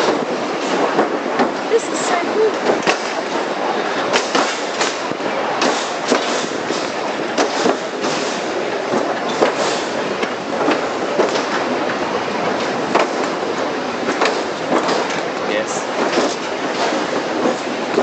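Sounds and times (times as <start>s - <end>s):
wheels rumbling on rails: 0.0s - 18.0s
sharp clacks: 4.1s - 18.0s.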